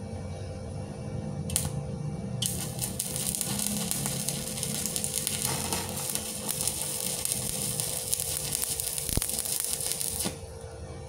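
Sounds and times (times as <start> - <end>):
welding arc crackling: 1.5 - 1.8, 2.4 - 10.4.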